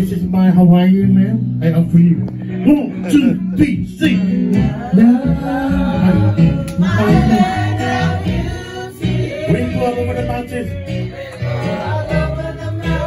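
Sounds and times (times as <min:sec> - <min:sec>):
guitar: 0:00.0 - 0:13.0
group singing in chorus: 0:04.4 - 0:13.0.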